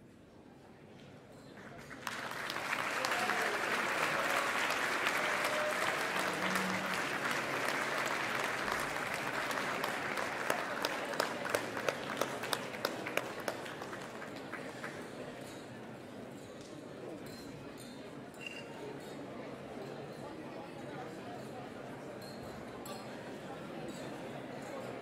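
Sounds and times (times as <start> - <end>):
crowd applauding: 1.8 - 15.3.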